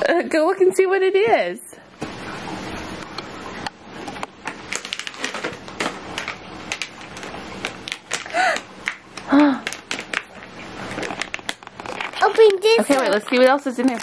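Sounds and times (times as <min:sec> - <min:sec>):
plastic bag crinkling: 0:04.0 - 0:14.0.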